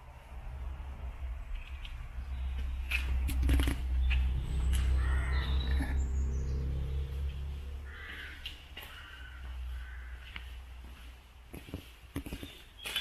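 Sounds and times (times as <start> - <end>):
crow cawing: 5.0 - 5.6, 7.8 - 10.6.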